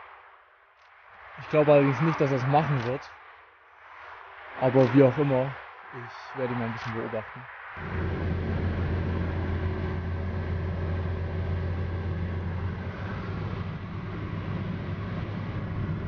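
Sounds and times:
car cabin road and wind noise: 0:03.8 - 0:16.0.

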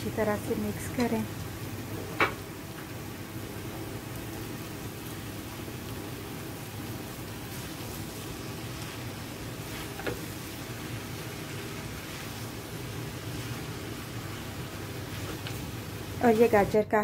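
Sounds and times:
steady hiss and low hum: 0:00.0 - 0:17.0
spatula scraping a pan: 0:13.2 - 0:15.7.

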